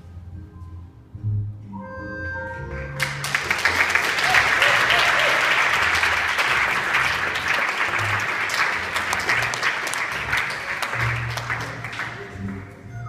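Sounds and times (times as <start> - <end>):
slow foxtrot music: 0.0 - 13.0
audience applauding: 2.7 - 12.8.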